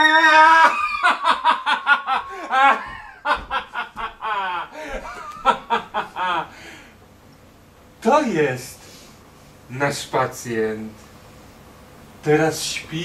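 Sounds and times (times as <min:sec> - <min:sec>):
person screaming: 0:00.0 - 0:01.6
stage laughter: 0:00.9 - 0:06.5.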